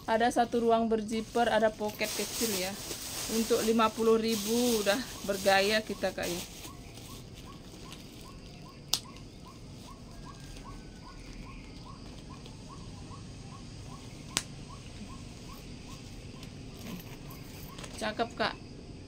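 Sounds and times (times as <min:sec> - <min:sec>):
faint chirping: 0:00.0 - 0:19.0.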